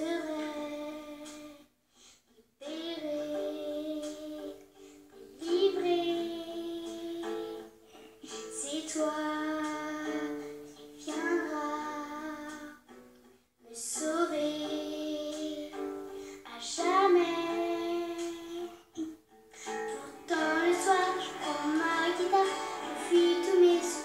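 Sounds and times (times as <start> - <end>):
light musical accompaniment: 2.7 - 24.0
person singing high notes: 19.6 - 24.0.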